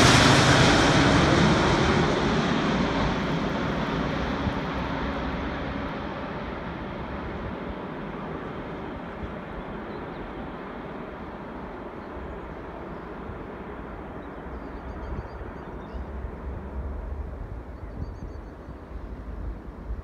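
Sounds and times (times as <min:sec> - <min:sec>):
distant jet engines rumbling: 0:00.0 - 0:20.0
wind buffeting microphone: 0:11.0 - 0:20.0
faint bird chirps: 0:14.2 - 0:16.2, 0:17.7 - 0:19.1.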